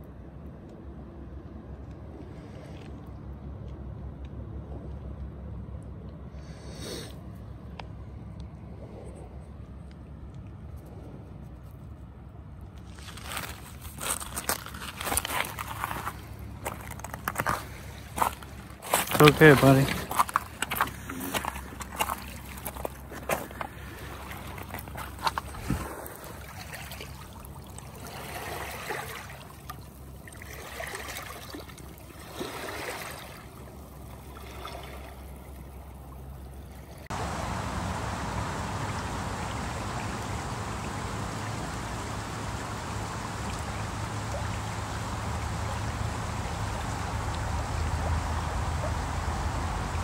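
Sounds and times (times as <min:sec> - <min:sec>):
creek running over stones: 0:12.8 - 0:50.0
water lapping at pebble shore: 0:12.8 - 0:50.0.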